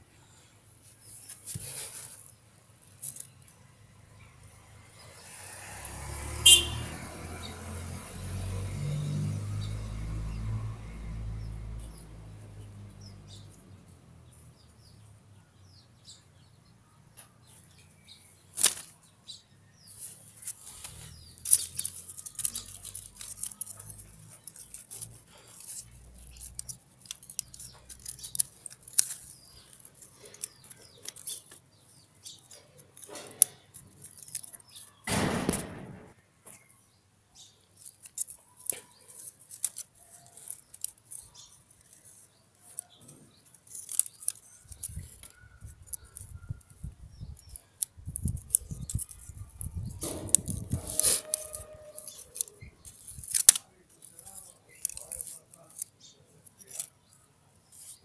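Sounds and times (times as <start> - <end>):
handling clicks and rustles: 0.8 - 3.6, 17.2 - 36.7, 37.4 - 58.0.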